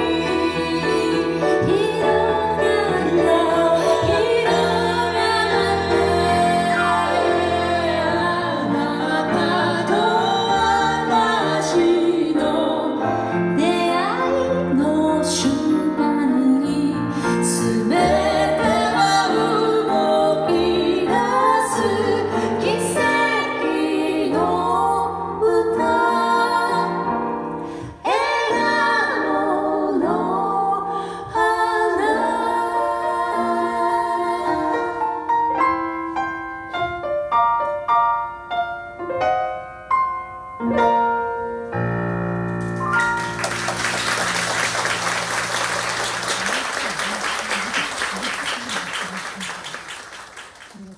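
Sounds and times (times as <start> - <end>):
woman singing a ballad: 0.0 - 27.0, 27.9 - 35.0
grand piano: 0.0 - 50.9.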